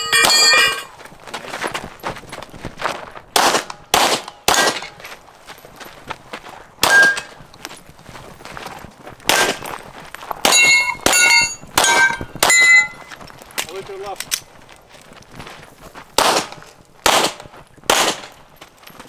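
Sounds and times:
steel plate clanging: 0.0 - 1.0, 6.8 - 7.4, 10.5 - 13.1
pistol shots: 3.3 - 5.0, 6.8 - 7.3, 9.3 - 9.6, 16.2 - 18.4.

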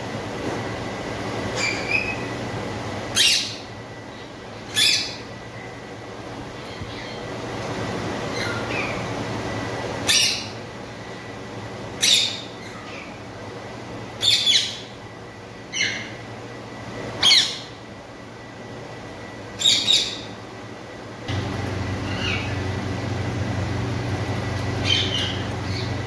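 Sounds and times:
parrots squawking: 1.6 - 2.3, 14.2 - 14.9, 17.2 - 17.8, 19.6 - 20.3, 22.0 - 22.6, 24.8 - 26.0.

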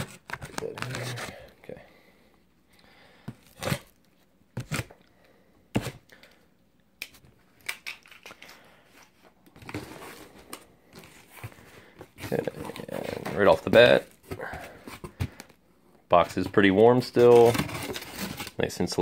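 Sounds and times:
cardboard rustling: 0.0 - 1.4, 9.1 - 15.5.

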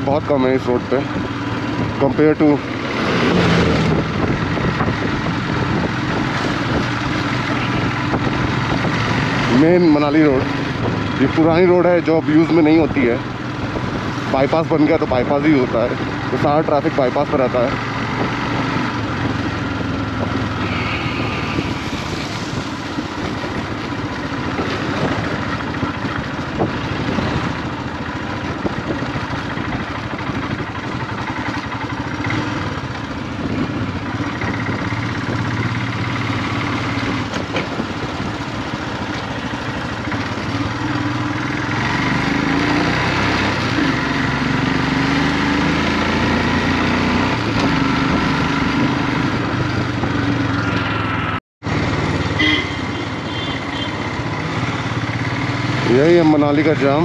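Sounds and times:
motorcycle engine running: 0.0 - 57.0
rushing wind noise: 1.1 - 12.0, 12.8 - 16.6, 17.5 - 39.0.

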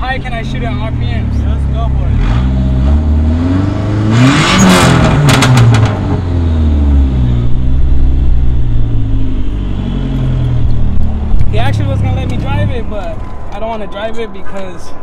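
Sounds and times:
car engine revving: 0.1 - 13.8
sharp exhaust pops: 4.8 - 6.2.

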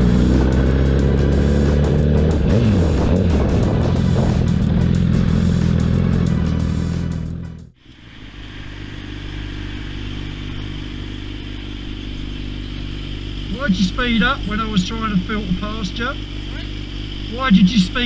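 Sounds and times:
motorcycle engine idling: 0.0 - 18.0
motorcycle engine running: 0.0 - 18.0.

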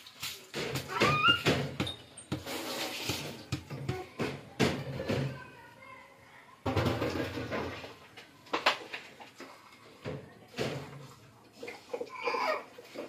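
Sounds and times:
wooden spatula scraping rice in pot: 2.3 - 3.5.

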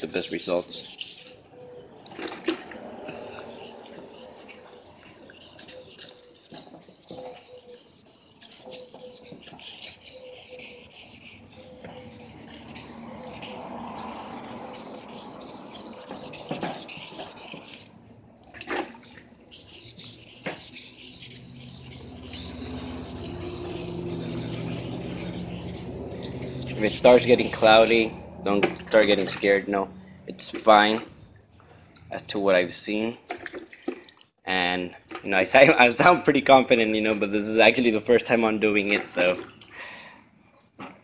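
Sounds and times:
sandpaper rubbing plastic: 0.0 - 1.4, 2.8 - 18.0, 19.5 - 28.1.

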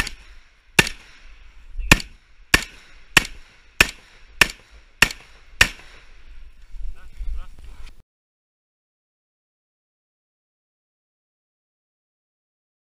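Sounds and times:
rifle shots: 0.0 - 6.3.

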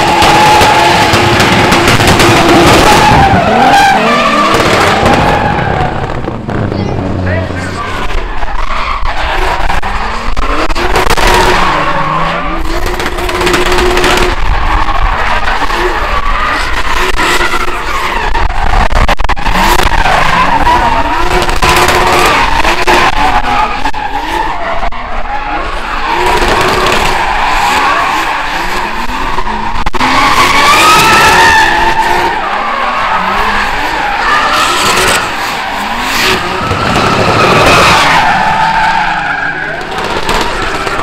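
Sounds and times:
engine revving at high revs: 19.1 - 23.4, 33.2 - 38.0.

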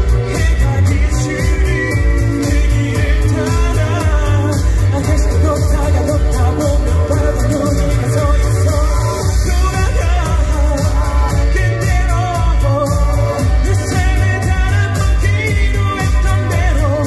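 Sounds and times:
backing track with bass beat: 0.0 - 17.0
man singing into microphone: 0.0 - 17.0.

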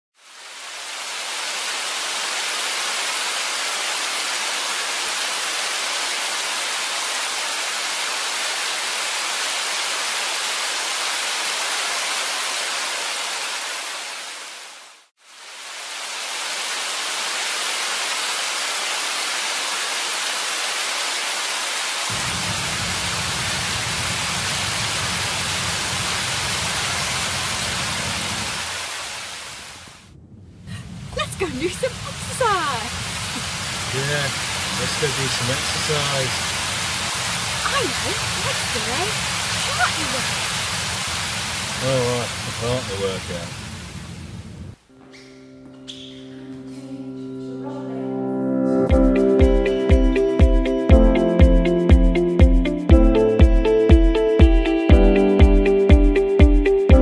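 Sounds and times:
heavy rain hiss: 0.2 - 44.9
low rumble: 29.9 - 31.5.

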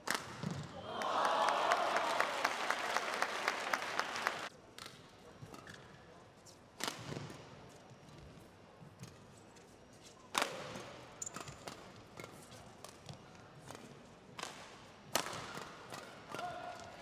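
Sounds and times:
racket hitting shuttlecock: 0.0 - 0.7, 10.3 - 16.9.

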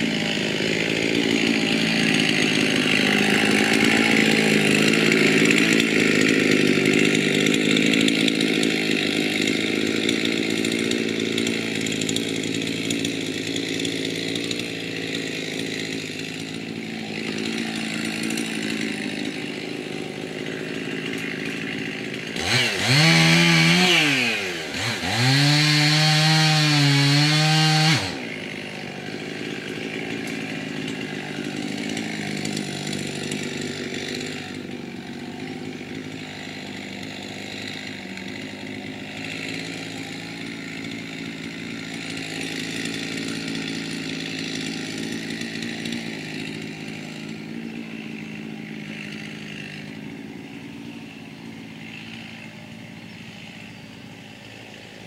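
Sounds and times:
chainsaw cutting wood: 0.0 - 55.0.

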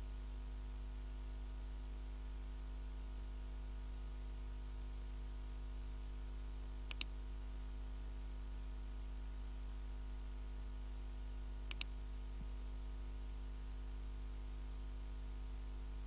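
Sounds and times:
low electrical hum: 0.0 - 16.0
computer mouse button click: 6.9 - 7.1, 11.7 - 11.9.

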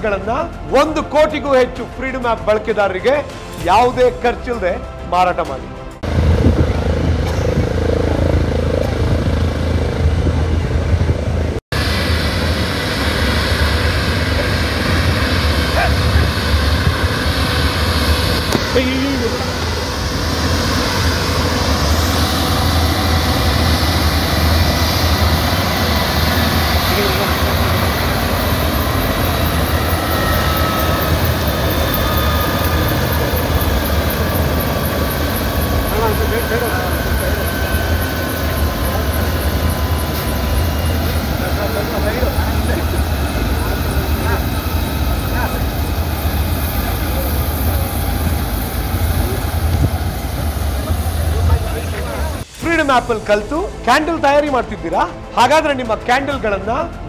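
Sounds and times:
helicopter rotor and turbine: 0.0 - 57.0
wind buffeting microphone: 6.0 - 35.9, 37.2 - 52.4.

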